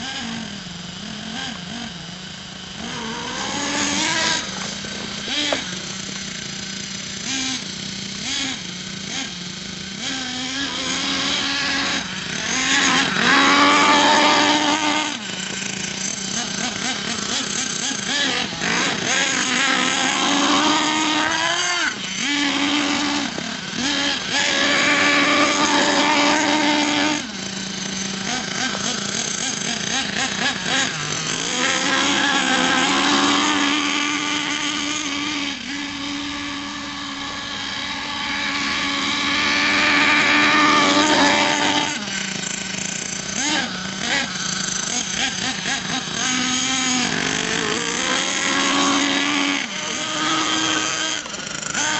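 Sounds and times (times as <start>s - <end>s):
small engine revving: 0.0s - 51.9s.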